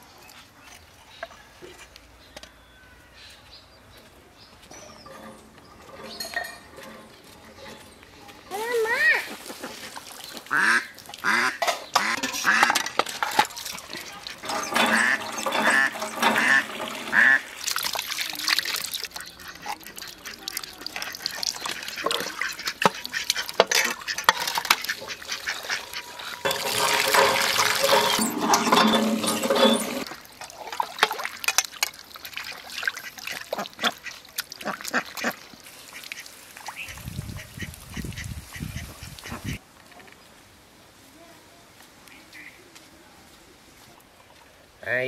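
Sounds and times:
pump handle squeaking and knocking: 4.7s - 8.0s, 12.0s - 17.4s, 21.9s - 30.1s
water splashing from spout: 9.1s - 38.2s.

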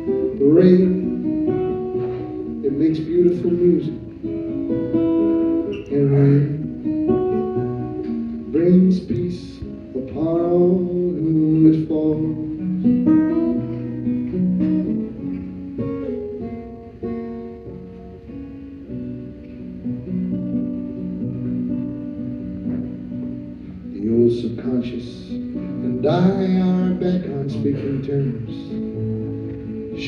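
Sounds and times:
person singing: 0.0s - 4.2s, 5.6s - 14.1s, 23.9s - 29.0s
acoustic guitar through speakers: 0.0s - 30.0s.

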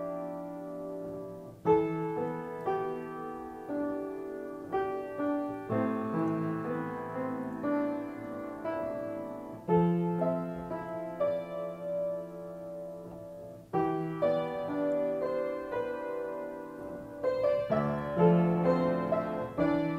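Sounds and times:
slow piano music: 0.0s - 19.9s.

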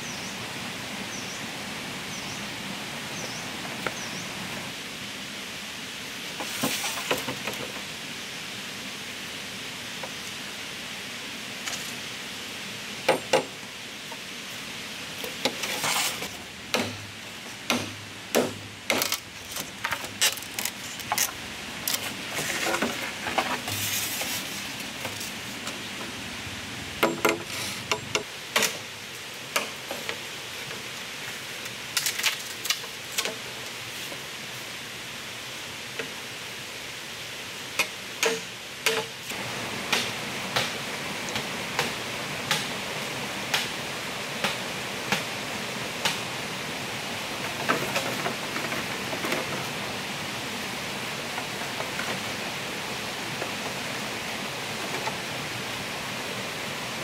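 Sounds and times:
steady background hiss: 0.0s - 57.0s
knocks clicks and scrapes: 18.4s - 25.4s.

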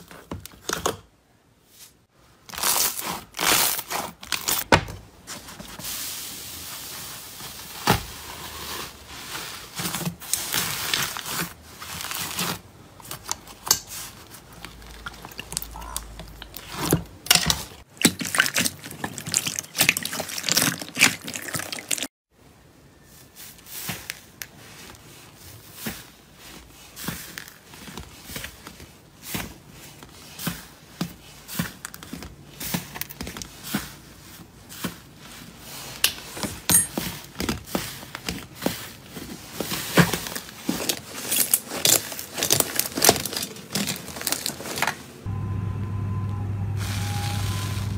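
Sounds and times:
slime squelching: 10.2s - 22.1s.

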